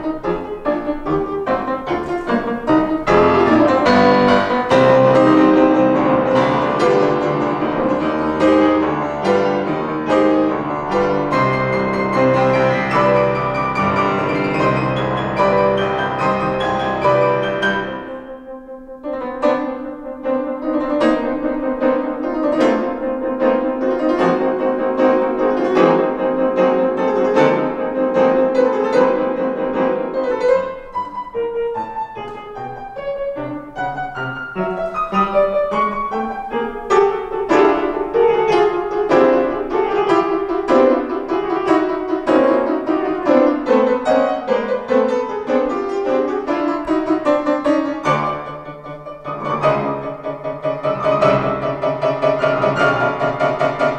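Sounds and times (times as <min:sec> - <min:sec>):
classical piano duet: 0:00.0 - 0:53.9.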